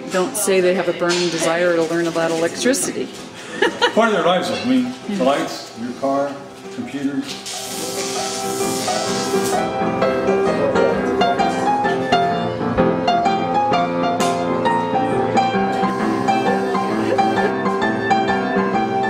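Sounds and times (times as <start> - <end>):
instrumental piano music: 6.3 - 19.0.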